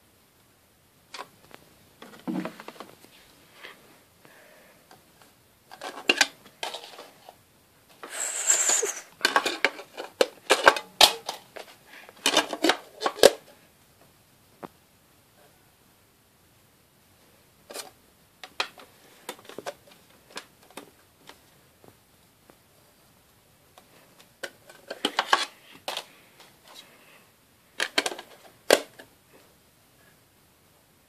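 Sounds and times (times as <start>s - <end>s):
plastic clicks and rattles: 27.8s - 29.1s.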